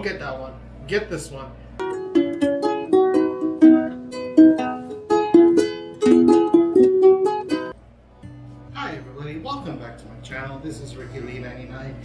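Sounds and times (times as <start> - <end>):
plucked-string melody: 1.8 - 9.4.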